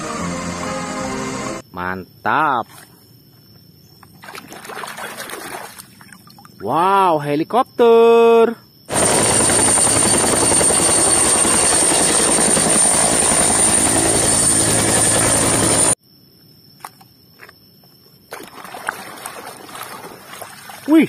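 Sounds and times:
helicopter rotor beating: 8.9 - 16.0.

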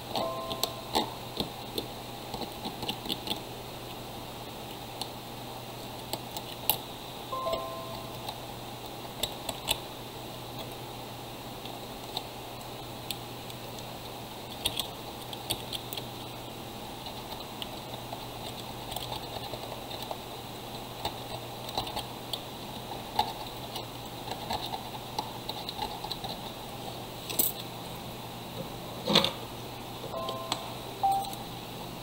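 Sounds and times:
small tools clicking and tapping: 0.0 - 4.0, 14.5 - 16.1, 17.0 - 26.5
steady low hum: 0.0 - 32.0.

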